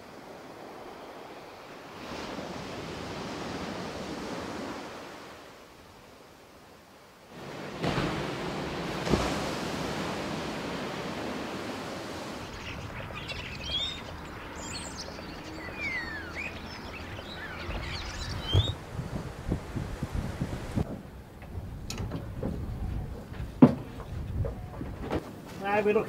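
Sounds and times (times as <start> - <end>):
small birds chirping: 12.4 - 18.8
low thumps: 17.6 - 25.2.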